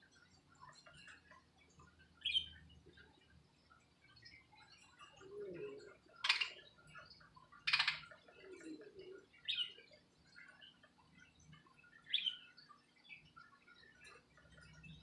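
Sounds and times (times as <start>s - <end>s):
soft bird chatter: 0.0s - 15.0s
budgerigar chirps: 7.7s - 8.1s.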